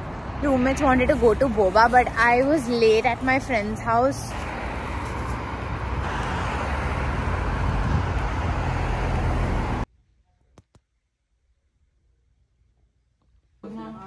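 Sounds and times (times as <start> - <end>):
cars passing on busy road: 0.0 - 9.9.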